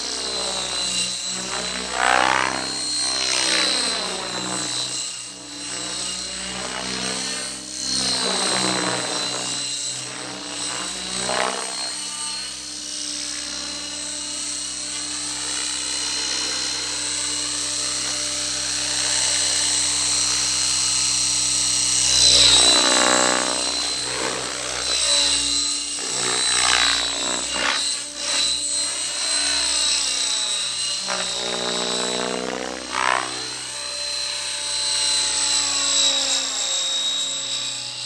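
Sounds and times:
model helicopter whine: 0.0s - 38.0s.

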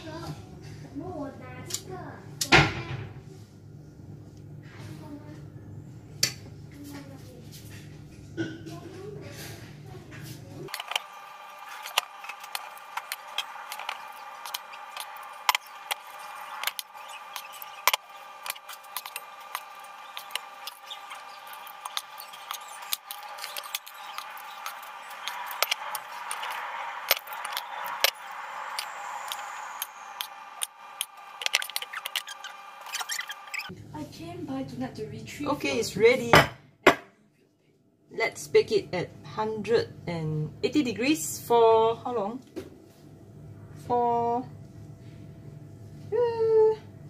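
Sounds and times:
steady hum: 9.7s - 35.2s.

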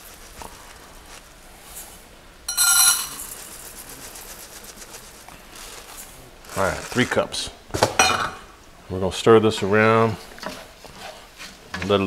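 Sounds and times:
faint steady hiss: 0.0s - 12.0s
glass jar clinking on metal cup: 2.5s - 3.4s.

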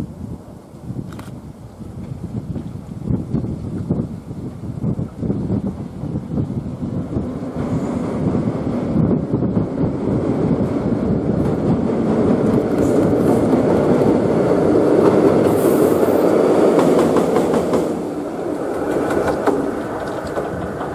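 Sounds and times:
train wheels clattering on rails: 4.4s - 20.9s.

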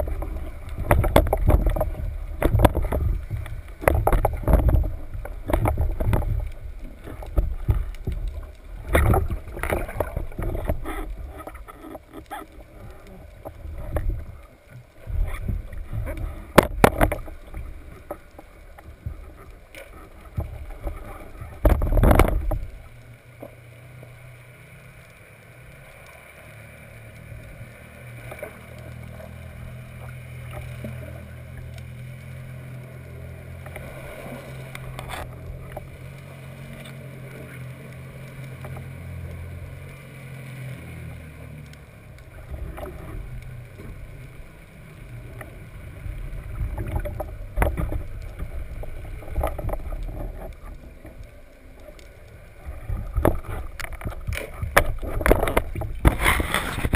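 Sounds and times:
muffled underwater knocks and splashes: 0.0s - 23.6s, 27.3s - 56.9s.

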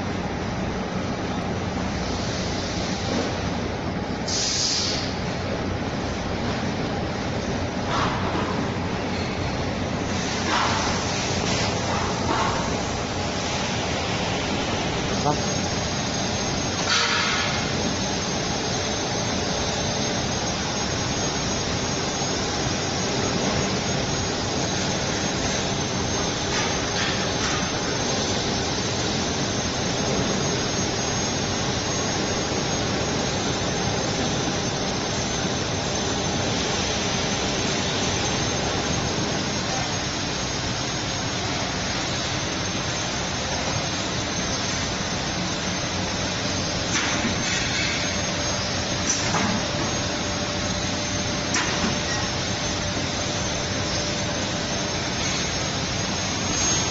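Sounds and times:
short hisses: 4.3s - 5.1s.

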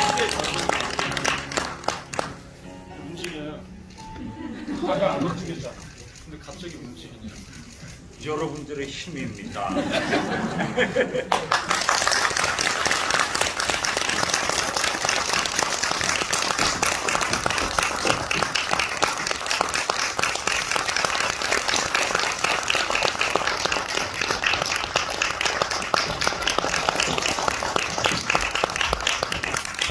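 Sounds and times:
audience applauding: 0.0s - 2.6s, 10.5s - 29.9s.

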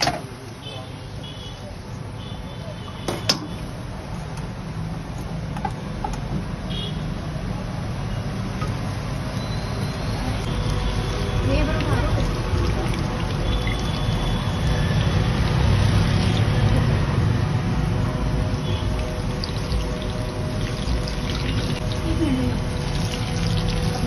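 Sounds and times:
food deep-frying in hot oil: 7.9s - 24.0s.

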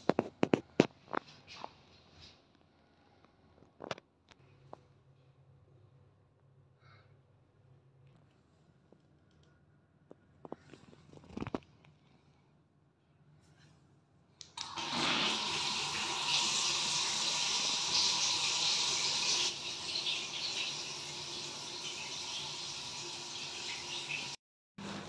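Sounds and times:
water pouring into bathtub: 14.6s - 24.4s.

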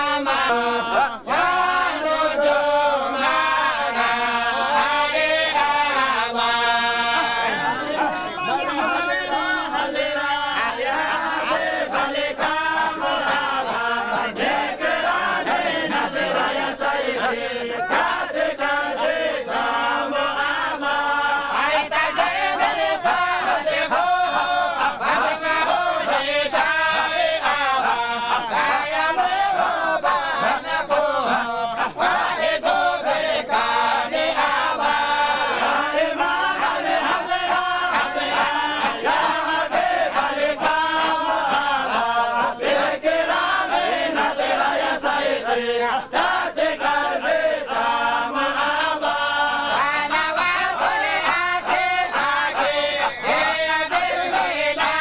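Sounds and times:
men chanting in unison: 0.0s - 55.0s.

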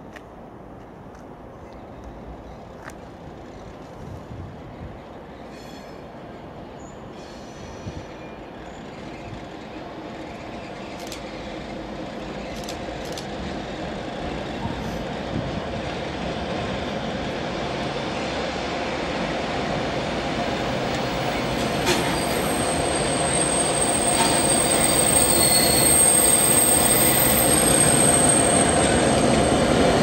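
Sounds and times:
diesel locomotive running: 7.6s - 30.0s.

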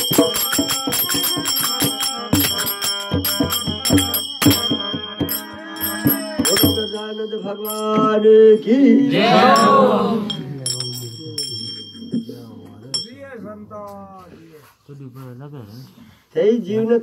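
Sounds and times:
drum strokes: 0.0s - 8.6s
jingling metal percussion: 0.0s - 13.6s
held melodic tones: 0.0s - 14.0s.

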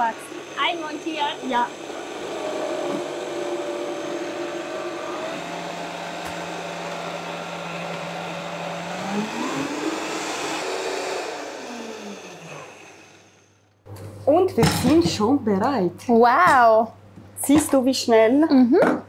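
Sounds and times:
blender running: 0.0s - 13.8s.

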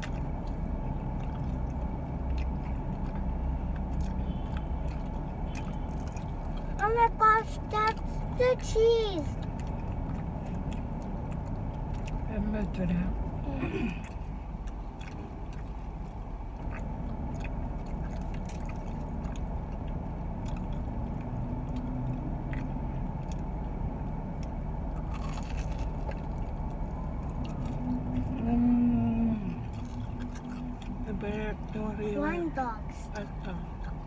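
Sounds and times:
chewing and mouth clicks: 0.0s - 32.0s
low rumble inside car: 0.0s - 34.0s.

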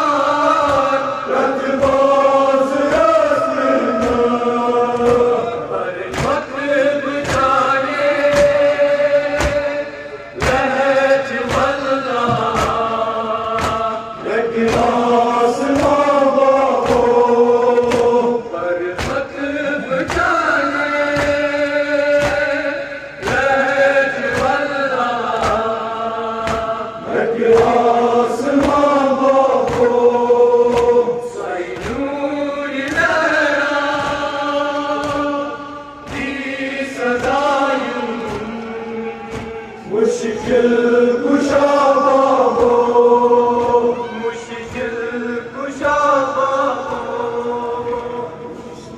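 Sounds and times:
men chanting in unison: 0.0s - 48.9s
hands slapping chests: 4.9s - 8.7s, 10.4s - 10.7s, 13.5s - 14.0s, 18.9s - 19.3s, 20.0s - 20.4s, 21.1s - 23.6s, 26.4s - 26.7s, 27.5s - 31.1s, 31.7s - 32.2s, 39.3s - 39.6s.

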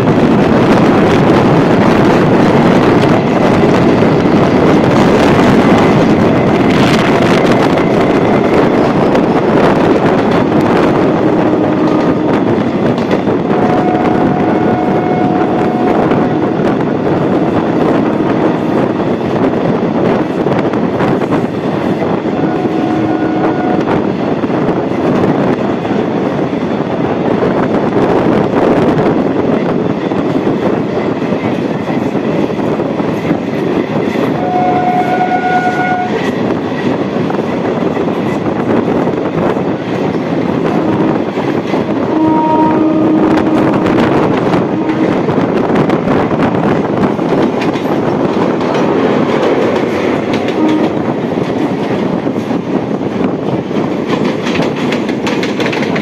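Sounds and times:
rushing wind: 0.0s - 56.0s
train wheels rumbling on rail: 0.0s - 56.0s
train horn: 11.1s - 12.6s, 13.5s - 16.8s, 22.3s - 24.0s, 34.3s - 36.3s, 42.0s - 45.4s, 50.5s - 51.2s.

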